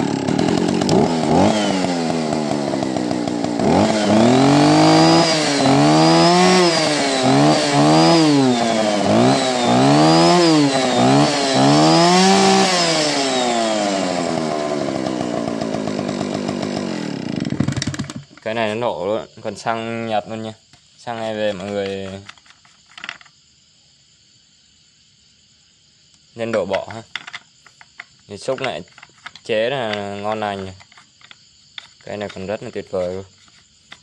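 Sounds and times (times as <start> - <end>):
chainsaw engine revving and idling: 0.0 - 18.4.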